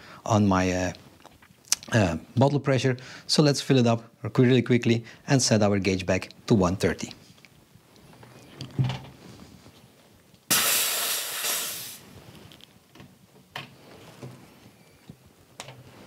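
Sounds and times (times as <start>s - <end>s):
high-pressure air hissing: 10.5s - 12.1s.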